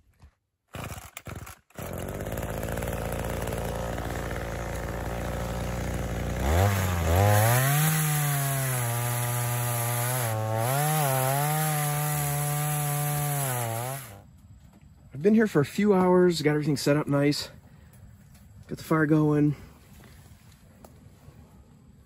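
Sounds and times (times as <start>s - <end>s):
chainsaw idling and revving: 0.7s - 14.2s.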